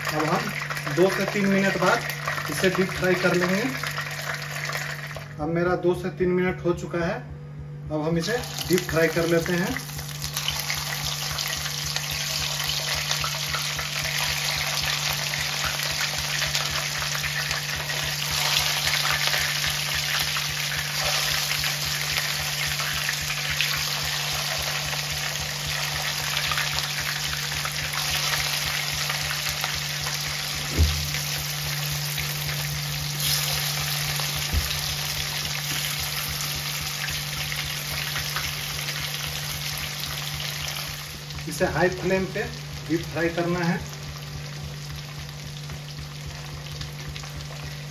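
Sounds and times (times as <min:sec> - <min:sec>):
oil sizzling while deep-frying: 0:00.0 - 0:05.4, 0:08.2 - 0:47.9.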